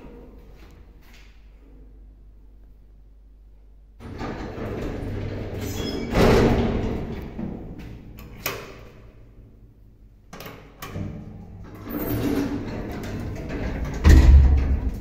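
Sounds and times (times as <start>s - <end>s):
lift doors shutting with thump: 4.0s - 7.7s, 10.8s - 15.0s.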